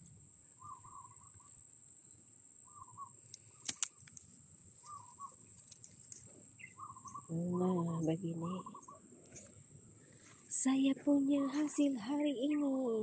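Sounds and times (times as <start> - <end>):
faint bird call: 0.0 - 1.6, 2.6 - 4.1, 4.8 - 5.5, 6.6 - 10.5
vegetable stems snapping: 3.6 - 4.2.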